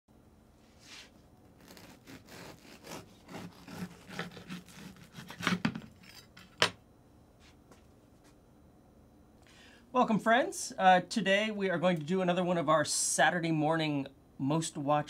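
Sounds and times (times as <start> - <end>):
bread knife sawing through crust: 1.6 - 5.7.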